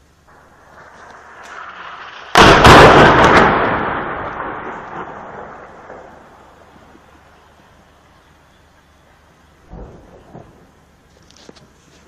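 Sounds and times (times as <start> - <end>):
rolling rumble: 0.0 - 12.0
shell explosion blast: 0.3 - 6.8.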